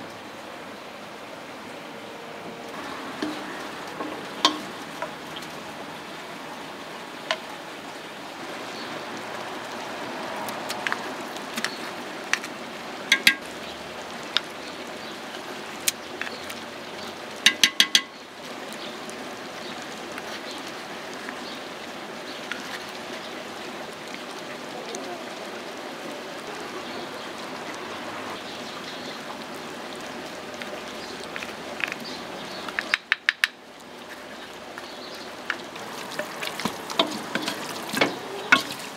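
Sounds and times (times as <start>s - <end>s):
wooden spoon knocking on bowl: 3.2s - 5.1s, 13.1s - 13.4s, 17.5s - 18.1s.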